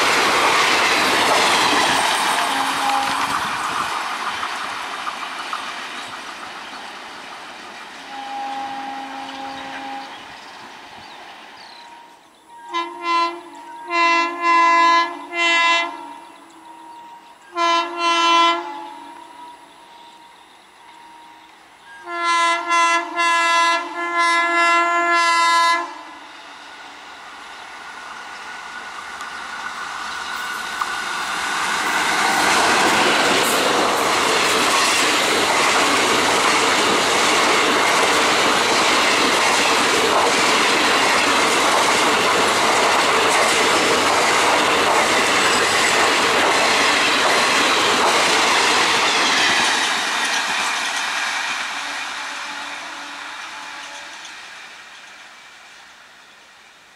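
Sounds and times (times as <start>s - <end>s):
train wheels rumbling over rails: 0.0s - 12.4s, 23.9s - 56.2s
electric locomotive horn blasts: 2.4s - 3.6s, 8.1s - 10.3s, 11.8s - 26.6s, 51.8s - 54.2s.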